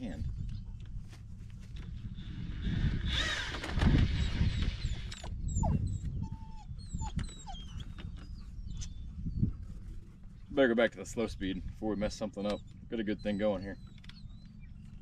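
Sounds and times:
wind rumble on microphone: 0:00.0 - 0:15.0
cordless drill whirring: 0:02.2 - 0:05.3
puppy whimpering: 0:04.2 - 0:09.4, 0:12.0 - 0:14.8.

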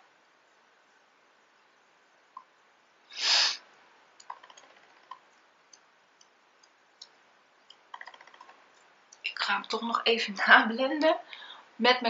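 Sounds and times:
short sharp breath: 0:03.1 - 0:03.6.

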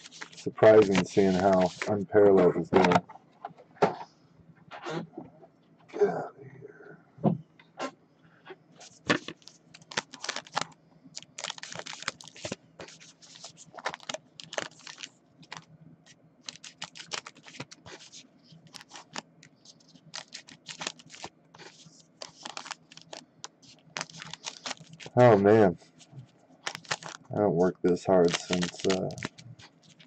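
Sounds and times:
foil packs crinkling: 0:00.0 - 0:02.0, 0:08.8 - 0:15.7, 0:16.4 - 0:25.4, 0:26.6 - 0:27.3, 0:28.0 - 0:30.0.

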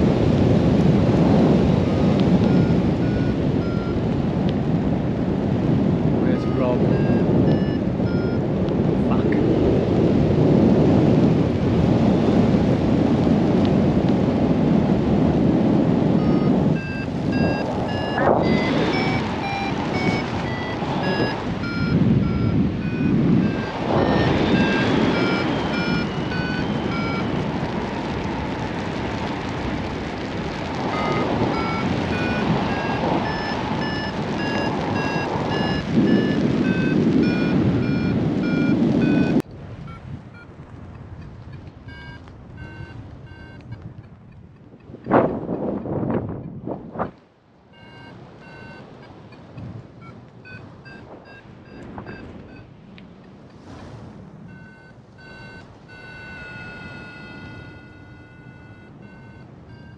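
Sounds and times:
wind and rain on microphone: 0:00.0 - 0:59.9
variometer short high beeps: 0:02.4 - 0:04.0, 0:06.2 - 0:08.5, 0:16.2 - 0:27.4, 0:30.9 - 0:40.5, 0:41.5 - 0:43.8, 0:47.7 - 0:52.7, 0:54.5 - 0:59.9.

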